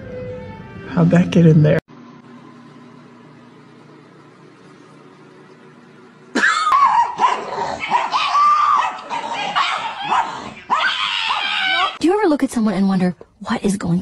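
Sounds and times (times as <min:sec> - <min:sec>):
dog whining and yowling: 0:06.4 - 0:12.0.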